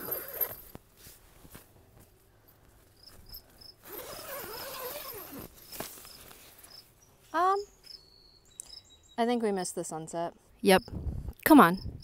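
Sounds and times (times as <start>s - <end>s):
crickets chirping: 2.4s - 9.2s
nylon fabric rustling: 3.8s - 6.6s.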